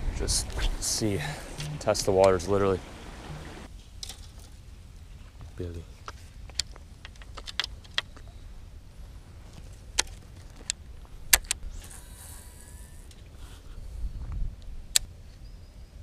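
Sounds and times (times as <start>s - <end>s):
steady low rumble: 0.0s - 4.0s.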